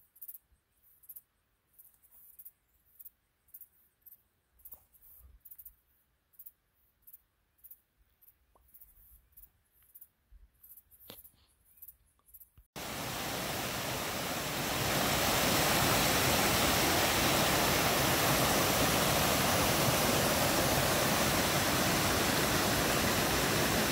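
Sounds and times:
waterfall rushing: 12.8s - 23.9s.

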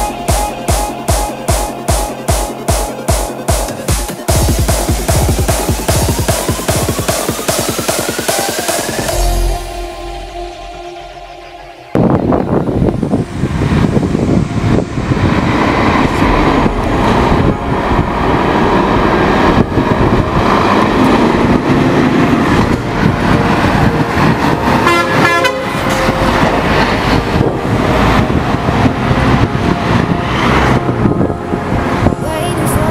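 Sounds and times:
diesel truck engine passing: 4.4s - 32.9s
truck horn toot: 24.7s - 32.5s.

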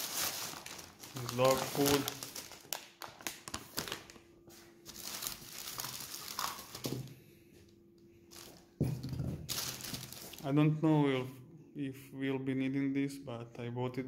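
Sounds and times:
plastic bags rustling and crinkling: 0.0s - 7.1s, 8.3s - 10.6s.

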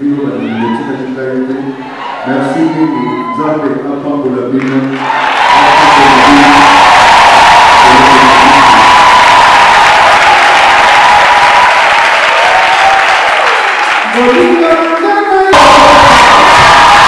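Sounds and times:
crowd cheering: 1.7s - 3.4s, 4.8s - 17.0s
people clapping: 4.6s - 17.0s.

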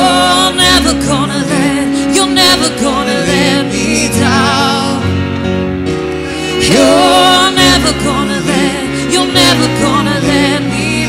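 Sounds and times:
voices singing: 0.0s - 5.2s, 6.5s - 11.0s
guitar and sustained chords: 0.0s - 11.0s
violin playing with vibrato: 5.9s - 11.0s.

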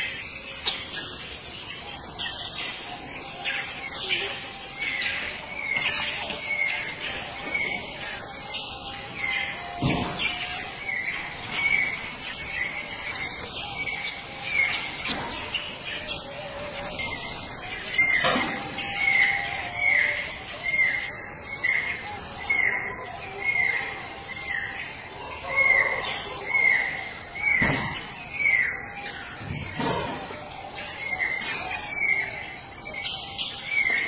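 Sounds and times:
high chirping call: 4.8s - 22.8s.

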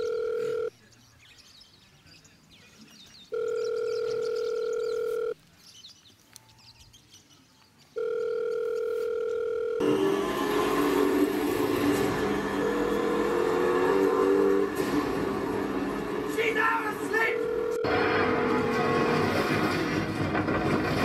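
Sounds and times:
telephone ringback tone: 0.0s - 0.7s, 3.3s - 5.4s, 8.0s - 9.8s, 17.2s - 18.0s.

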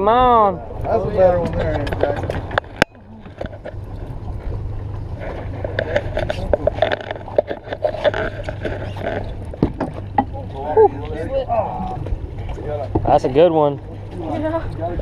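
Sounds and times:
steady low hum: 0.0s - 15.0s
water noise: 0.0s - 15.0s
wind: 0.0s - 15.0s.

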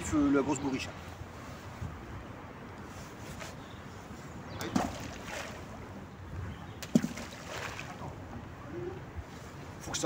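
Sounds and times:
balls plopping into water: 6.8s - 8.0s.

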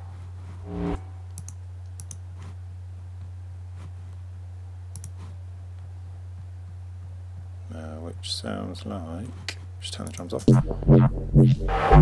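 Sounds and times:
low hum: 0.0s - 1.8s, 10.5s - 12.0s
computer mouse clicks: 1.3s - 2.2s, 4.9s - 5.3s.

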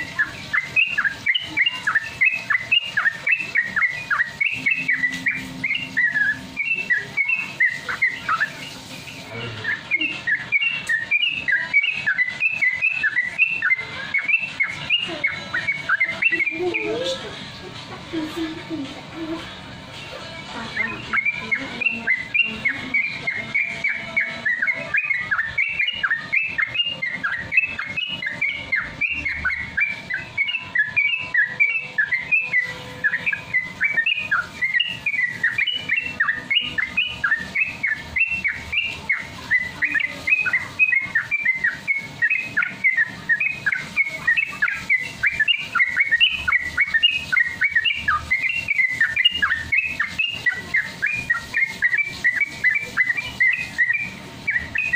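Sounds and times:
bird singing bubbling chirps: 0.0s - 17.3s, 20.7s - 54.9s.

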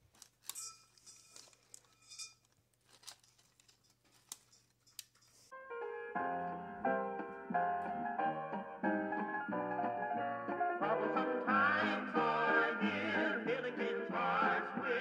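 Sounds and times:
metal tongs scraping and clicking: 0.2s - 5.5s
instrumental background music: 5.5s - 15.0s.

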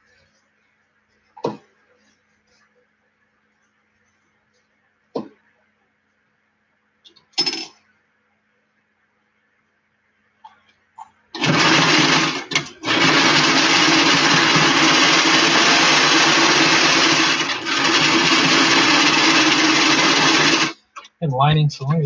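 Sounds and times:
sewing machine stitching: 11.4s - 20.8s.

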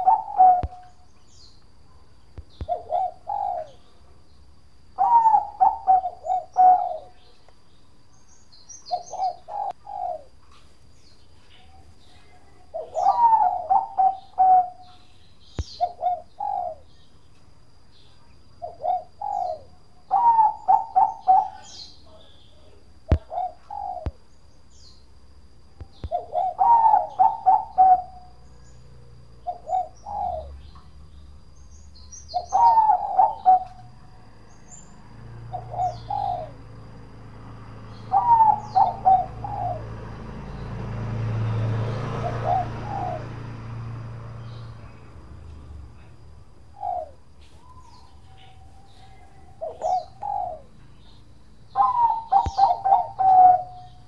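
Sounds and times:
dove cooing: 0.0s - 1.0s, 2.6s - 4.0s, 5.0s - 7.4s, 8.9s - 10.4s, 11.6s - 15.1s, 15.7s - 17.0s, 18.6s - 24.2s, 25.8s - 30.7s, 32.2s - 37.1s, 37.7s - 40.4s, 41.4s - 43.7s, 44.4s - 54.0s.

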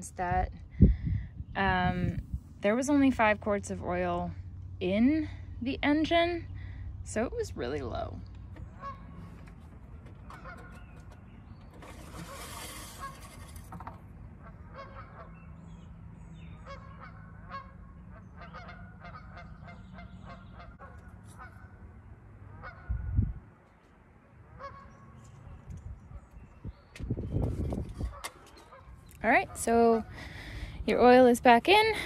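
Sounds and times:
birds calling: 8.3s - 21.9s, 23.6s - 31.0s.

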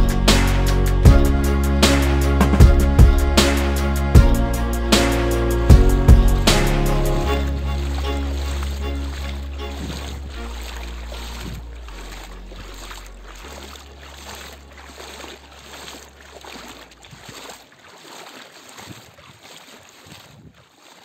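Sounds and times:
low held bass notes: 0.0s - 15.0s.

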